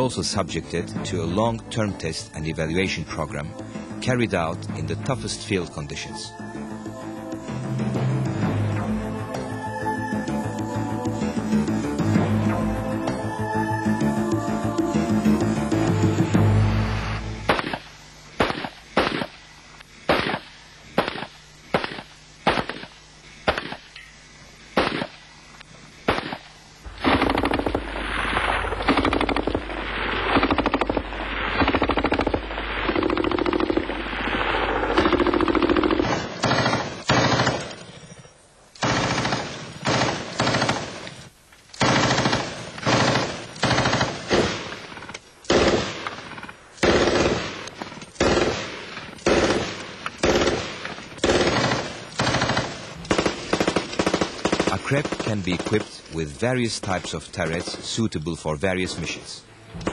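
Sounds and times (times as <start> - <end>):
single gunshots: 17.4 - 19.4, 20.0 - 23.9, 24.8 - 25.2, 26.0 - 35.2, 36.0 - 37.8
machine gun firing bursts: 18.4 - 19.4, 20.0 - 23.8, 26.0 - 38.2, 38.8 - 41.1, 41.8 - 56.2.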